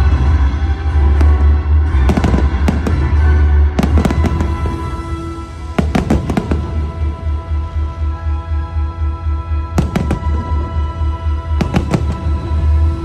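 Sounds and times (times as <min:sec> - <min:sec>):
loud music: 0:00.0 - 0:13.0
fireworks bangs and crackles: 0:01.0 - 0:07.4, 0:09.8 - 0:13.0.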